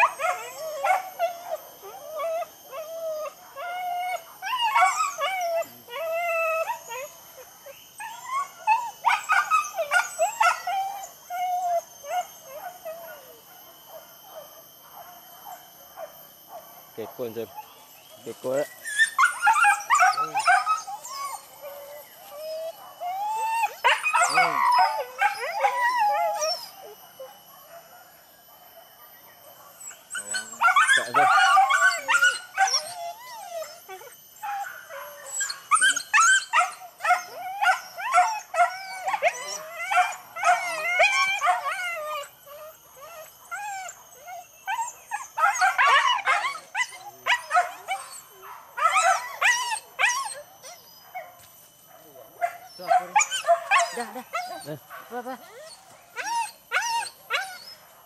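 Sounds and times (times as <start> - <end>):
dogs baying and yelping: 0.0 - 58.0.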